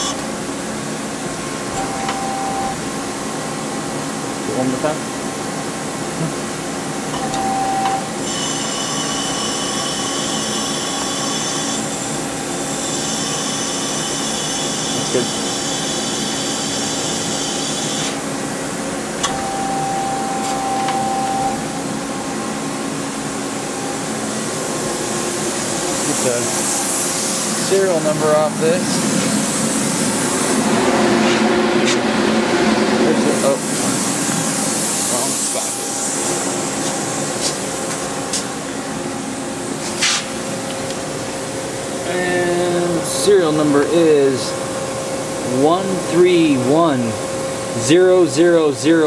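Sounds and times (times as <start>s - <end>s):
machine running hum: 0.0s - 48.8s
steady machine whine: 0.0s - 49.0s
high whining tones: 19.2s - 37.4s.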